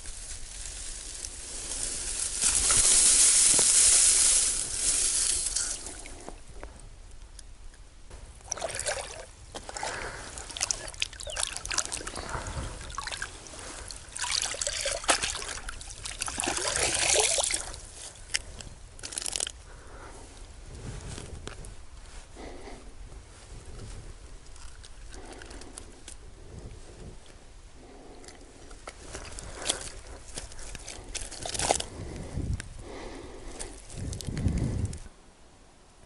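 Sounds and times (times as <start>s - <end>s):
shallow water splashing: 8.4s - 17.9s.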